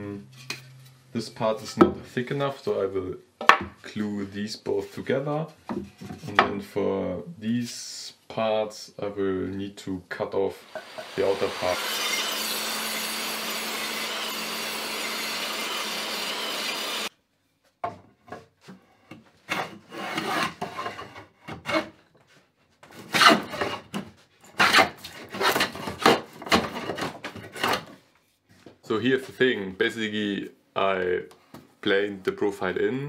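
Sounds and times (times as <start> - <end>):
table saw ripping a board: 10.7 - 17.1, 19.4 - 22.0, 22.9 - 27.9
hand plane shaving wood: 19.4 - 22.0, 24.6 - 27.9.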